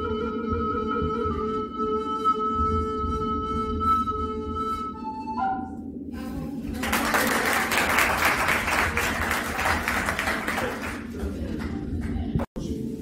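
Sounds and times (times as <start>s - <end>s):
audience clapping: 6.7s - 12.5s.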